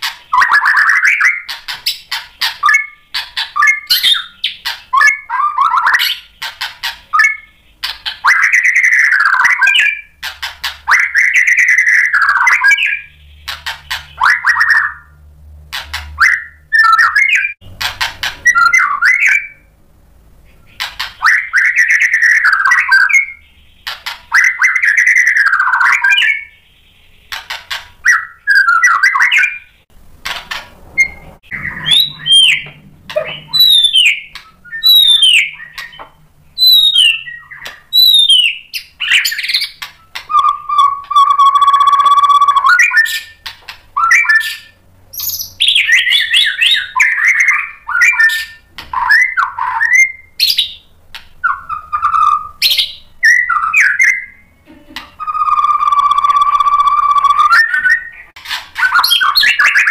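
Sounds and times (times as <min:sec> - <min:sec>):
songbird singing warbling phrases: 0:00.0 - 0:15.2, 0:16.2 - 0:19.7, 0:20.4 - 0:29.8, 0:31.0 - 0:59.9.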